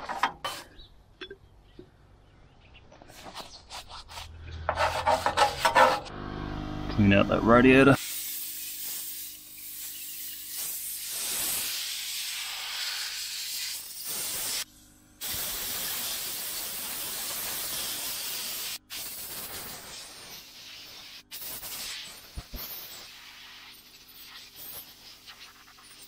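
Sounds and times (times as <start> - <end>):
compressed air gun hissing: 8.0 - 26.0.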